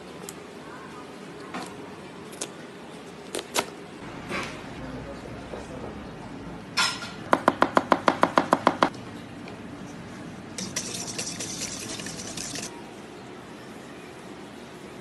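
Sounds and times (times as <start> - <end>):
clinking and scraping in bowl: 10.6 - 12.7.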